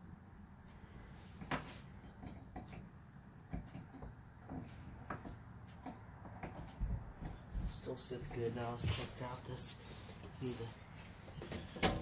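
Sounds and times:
metal parts knocking and clinking: 1.4 - 6.7, 11.5 - 12.0.

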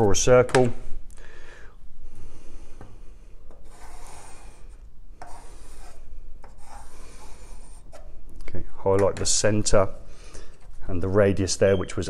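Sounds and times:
pencil scratching across paper: 3.6 - 8.1.

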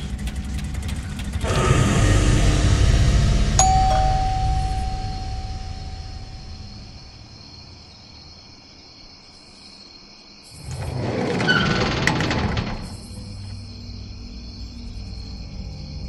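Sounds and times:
door squeak: 10.6 - 13.8.

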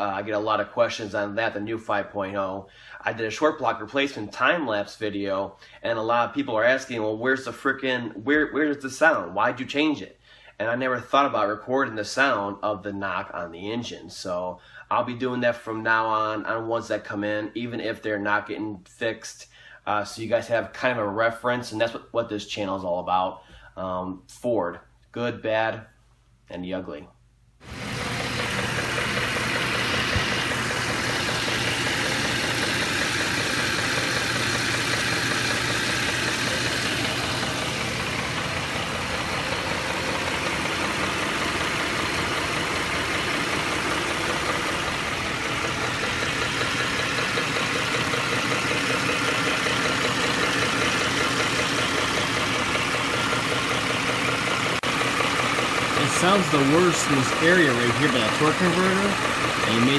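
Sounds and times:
engine idling with knock: 27.6 - 59.9.

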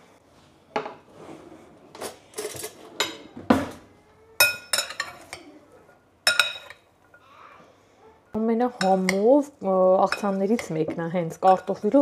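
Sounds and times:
metal utensils clinking glass bowl: 4.4 - 5.4, 6.3 - 6.8, 8.7 - 9.2, 10.0 - 12.0.

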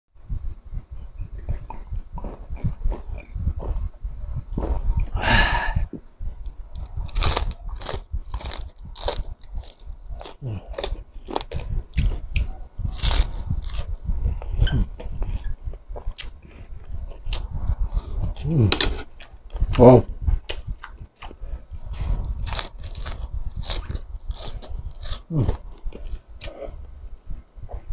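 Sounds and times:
wet chewing: 6.4 - 26.7
loud crunches of fried food: 6.8 - 12.2, 22.4 - 25.4.

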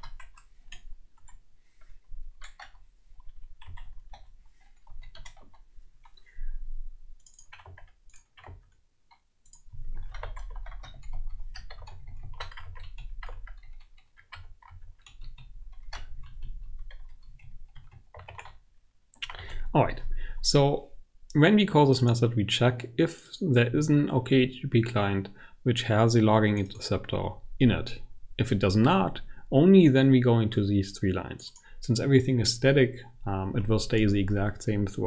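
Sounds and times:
keyboard typing clicks: 0.0 - 1.4, 2.4 - 6.3, 7.2 - 18.6.

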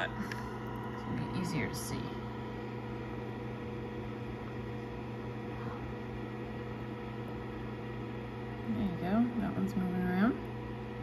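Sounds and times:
incubator humming: 0.0 - 11.0.

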